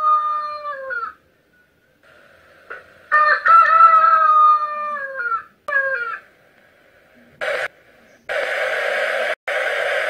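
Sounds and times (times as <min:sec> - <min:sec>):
rooster crowing: 0:03.1 - 0:06.2.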